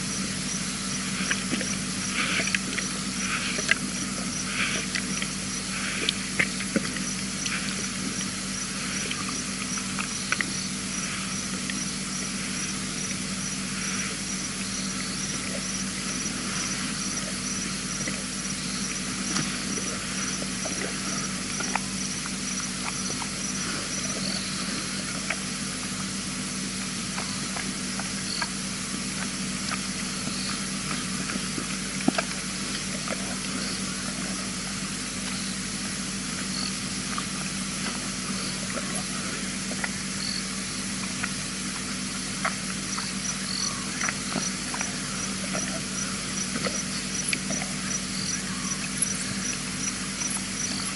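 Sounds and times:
short insect chirp: 0.0s - 25.1s, 28.2s - 28.6s, 36.4s - 37.0s, 42.8s - 50.9s
insects chirping: 0.0s - 50.9s
low hum: 0.0s - 50.9s.

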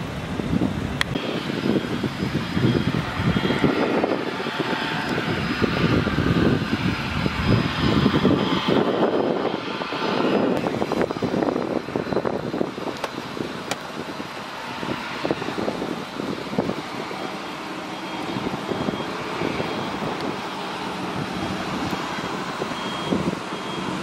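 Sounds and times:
jet engines taxiing: 0.0s - 24.0s.

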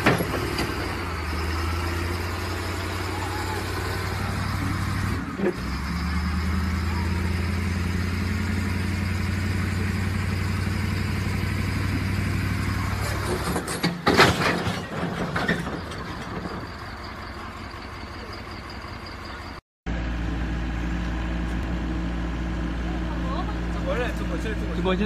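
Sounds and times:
loud crash with clattering knocks: 0.0s - 1.0s, 13.0s - 16.8s
second engine running: 0.0s - 13.5s, 16.8s - 25.0s
heavy machine engine running: 0.0s - 14.1s.

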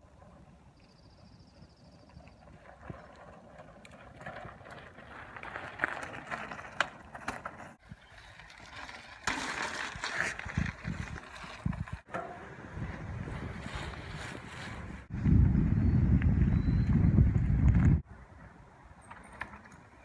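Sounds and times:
bike tyres crunching on gravel: 2.0s - 12.1s, 12.8s - 15.1s
wind buffeting microphone: 10.3s - 18.5s.

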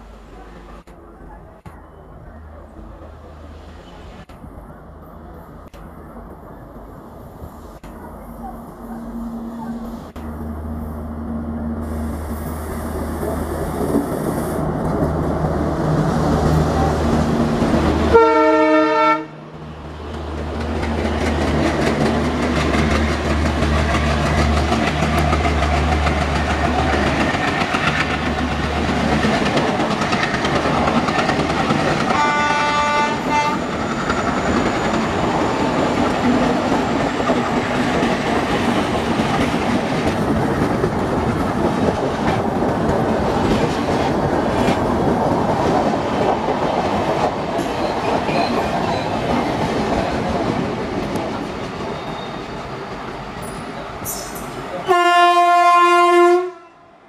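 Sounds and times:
diesel locomotive engines chugging: 0.0s - 18.7s
train horn blast: 18.1s - 19.4s, 32.1s - 33.7s, 54.8s - 57.0s
train wheel clatter: 20.1s - 54.6s.

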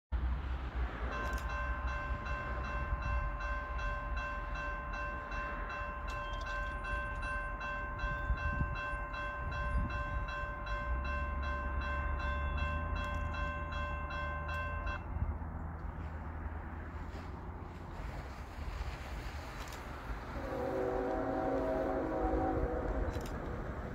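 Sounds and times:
crossing warning bell ringing: 0.9s - 15.7s, 20.3s - 23.9s.

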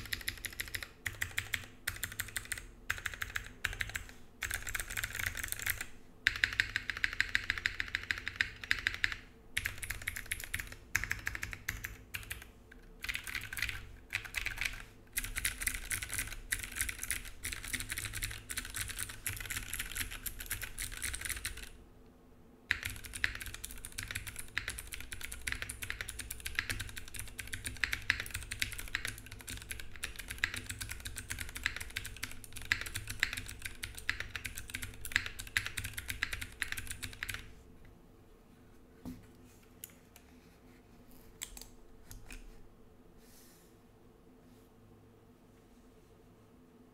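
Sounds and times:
mechanical keyboard typing: 0.0s - 21.8s, 22.7s - 37.5s.

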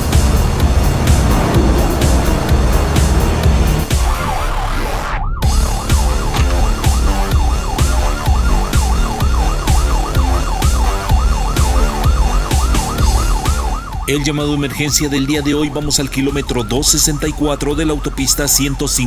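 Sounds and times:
steady drum beat: 0.0s - 4.1s
music: 0.0s - 19.0s
siren wail: 0.0s - 19.0s.

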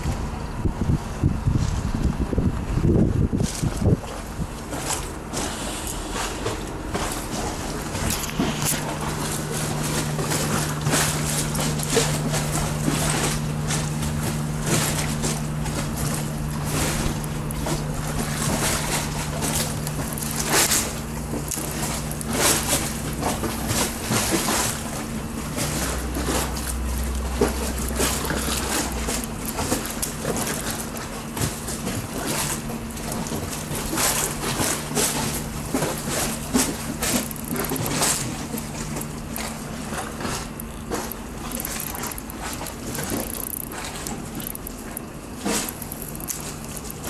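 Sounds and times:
wind buffeting microphone: 0.0s - 22.4s
steady low hum: 0.0s - 47.0s.

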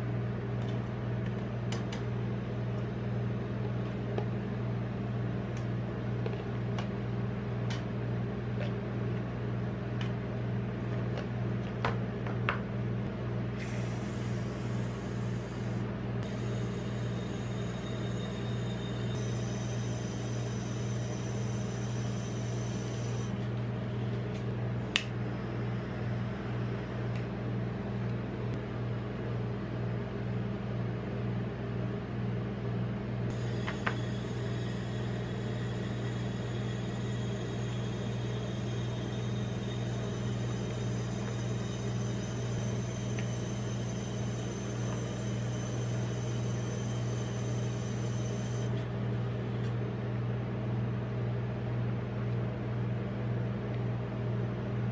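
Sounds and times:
refrigeration compressor humming: 0.0s - 54.9s.

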